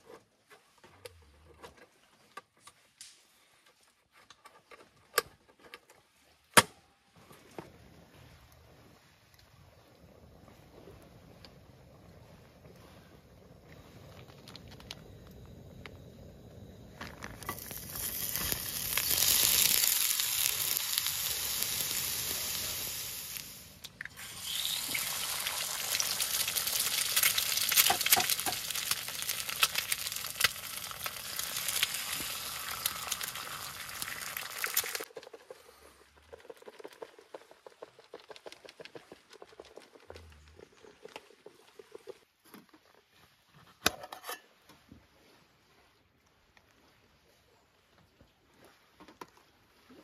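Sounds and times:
egg sizzling in skillet: 0:13.5 - 0:35.5.

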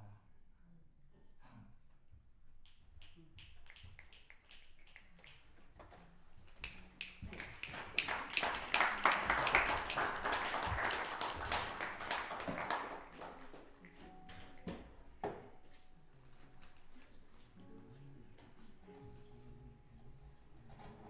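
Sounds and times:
audience applause: 0:07.0 - 0:13.8.

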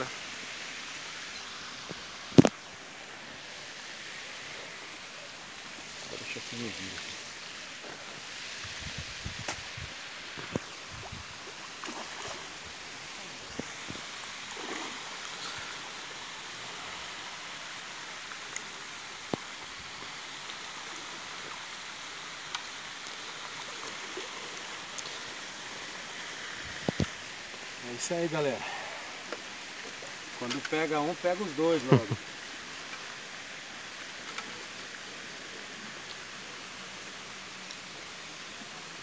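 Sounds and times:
steady rushing hiss: 0:00.0 - 0:39.0.

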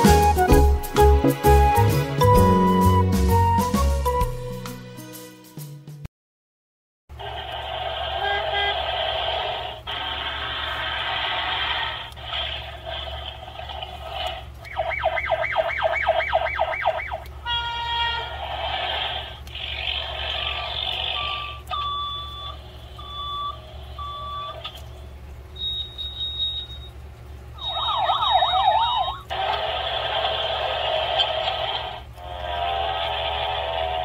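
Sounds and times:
fast wailing siren: 0:14.7 - 0:18.4, 0:27.6 - 0:29.3
beeps: 0:21.1 - 0:24.8, 0:25.6 - 0:27.0, 0:27.6 - 0:29.3
steady electronic tone: 0:27.6 - 0:29.3.

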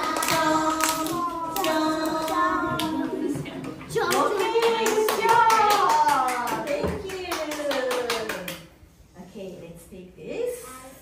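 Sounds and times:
children singing: 0:00.0 - 0:04.1
hand claps: 0:04.0 - 0:08.7.

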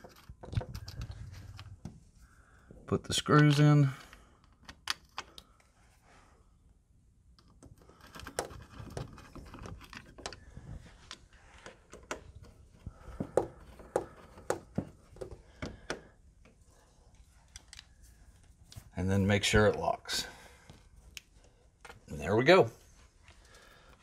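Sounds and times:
screwdriver clicks and scrapes: 0:00.0 - 0:01.8.

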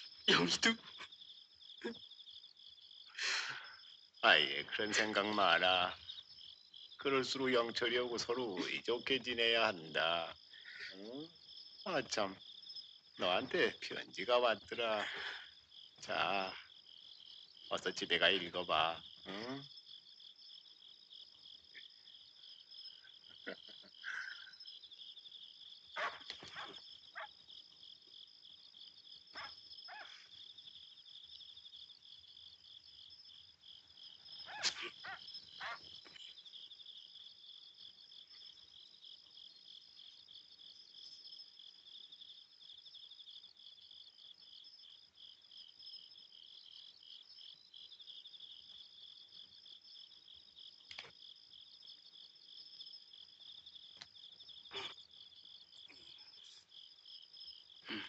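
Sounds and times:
crickets chirping: 0:00.0 - 0:58.0.

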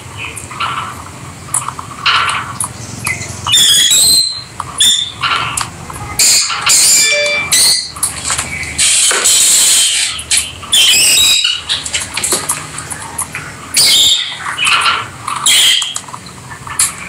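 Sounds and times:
lovebirds chirping and squawking: 0:02.9 - 0:05.6, 0:09.5 - 0:12.2, 0:12.8 - 0:17.0.

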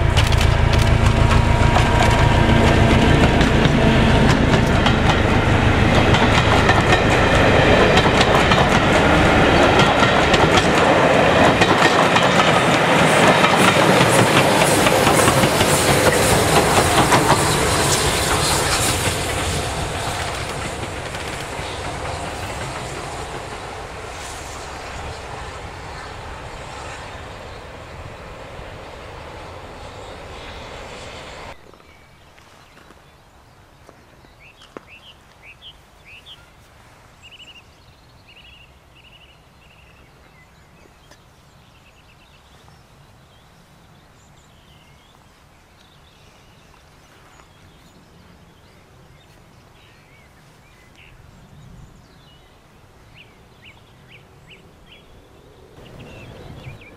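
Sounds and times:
steam train clattering on rails: 0:00.0 - 0:31.6
small birds chirping: 0:37.2 - 0:56.9.

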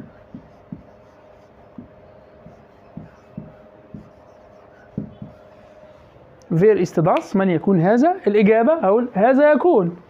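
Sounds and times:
marker pen writing on whiteboard: 0:00.0 - 0:06.2
faint steady hum: 0:00.0 - 0:10.0.

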